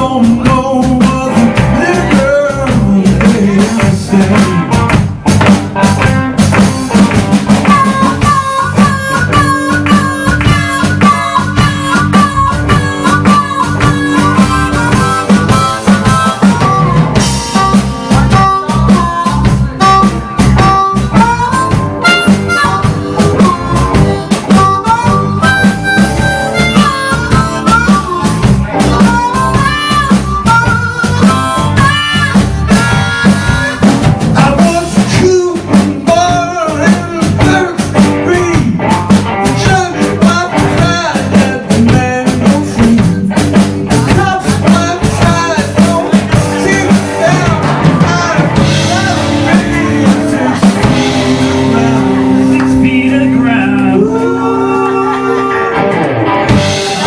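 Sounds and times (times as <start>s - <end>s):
drum kit steady beat: 0.0s - 55.2s, 55.8s - 57.0s
electric bass: 0.0s - 57.0s
electric guitar: 0.0s - 57.0s
amplified harmonica solo: 5.7s - 34.7s, 43.1s - 57.0s.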